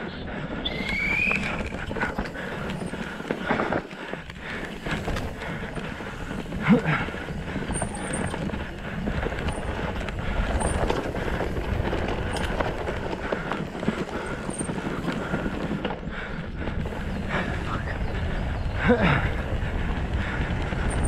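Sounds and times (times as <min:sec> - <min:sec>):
bike rattling over bumps: 0:00.7 - 0:21.0
tyres rolling on dirt: 0:00.7 - 0:21.0.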